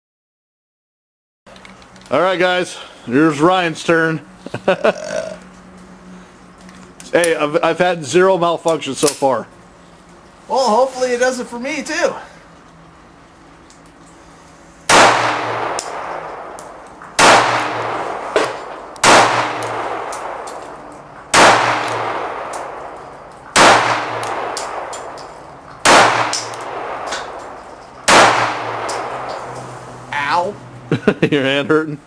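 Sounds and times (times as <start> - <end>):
pistol shots with echo: 14.9 - 29.5.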